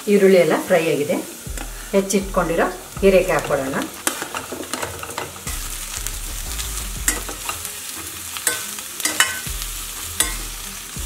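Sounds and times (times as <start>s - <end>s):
vegetables sizzling in hot oil: 0.0s - 11.0s
spatula scraping a pan: 3.3s - 10.9s.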